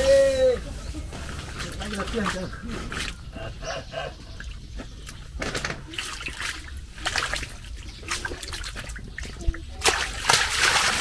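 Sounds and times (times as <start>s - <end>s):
frogs splashing in water: 4.4s - 11.0s.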